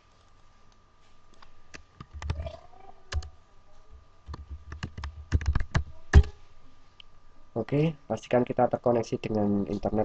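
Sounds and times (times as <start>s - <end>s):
keyboard typing: 1.7s - 2.5s, 3.1s - 3.4s, 4.3s - 6.3s.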